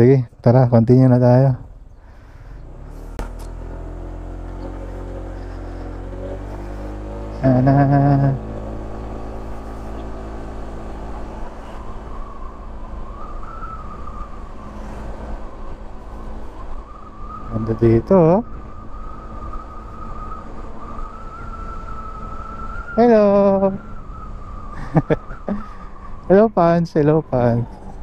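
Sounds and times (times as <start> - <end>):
scooter engine riding off: 2.5 - 17.4.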